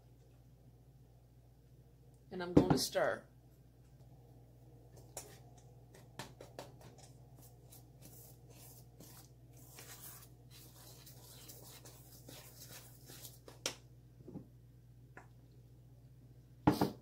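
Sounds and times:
spoon scraping metal bowl: 8.0 - 13.4.

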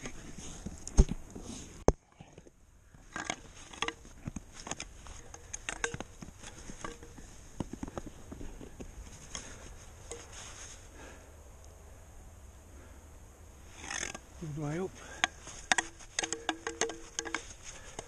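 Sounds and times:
snow crunching and scraping: 3.4 - 11.2, 13.6 - 18.0.

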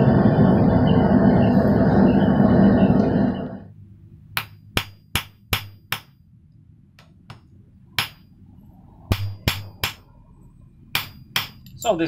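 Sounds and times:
hammer striking metal: 4.4 - 6.2, 7.3 - 8.3, 9.1 - 10.1, 10.9 - 11.8.

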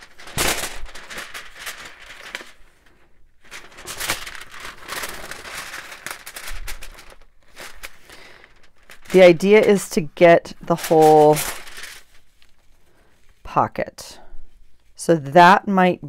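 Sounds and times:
paper rustling and crinkling: 0.0 - 13.5.

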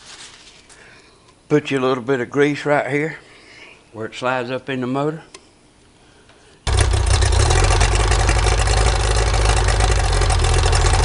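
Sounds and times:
outboard motor idling: 6.7 - 11.0.

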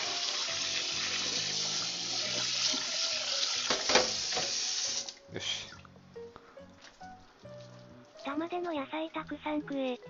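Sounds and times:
tap water splashing into sink: 0.0 - 5.2.

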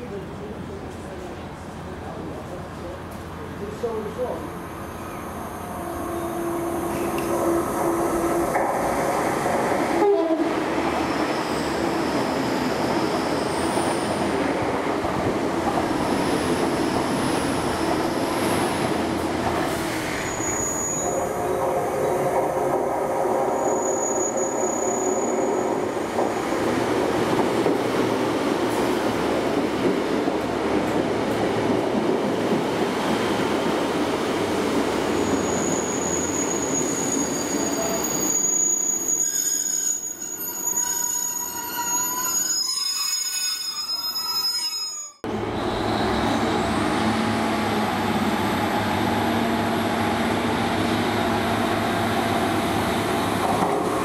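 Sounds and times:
train wheels rumbling on rail: 5.6 - 38.2, 45.2 - 54.0
high-pitched wheel squeal: 20.2 - 21.2, 23.6 - 25.6, 35.2 - 46.7.

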